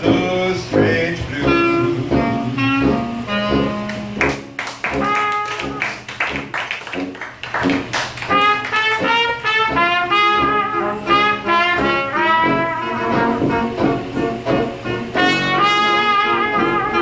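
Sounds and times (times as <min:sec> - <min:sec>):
clarinet: 0:00.0 - 0:17.0
jazz band playing: 0:00.0 - 0:17.0
trombone: 0:00.0 - 0:17.0
trumpet: 0:00.0 - 0:17.0
tuba: 0:00.0 - 0:17.0
strummed chords: 0:08.3 - 0:17.0.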